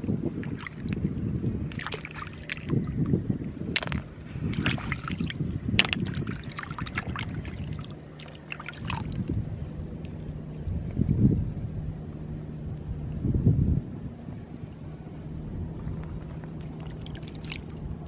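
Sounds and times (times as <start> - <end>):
hands splashing in water: 0.0 - 9.4, 16.6 - 17.8
wind rumble on microphone: 0.0 - 18.0
water dripping: 1.7 - 3.2, 3.8 - 10.9, 16.6 - 17.8.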